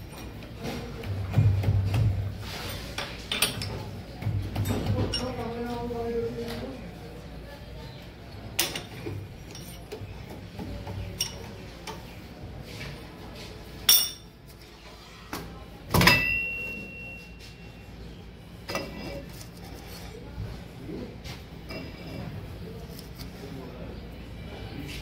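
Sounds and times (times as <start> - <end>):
high metallic ringing tone: 16.1 - 17.9.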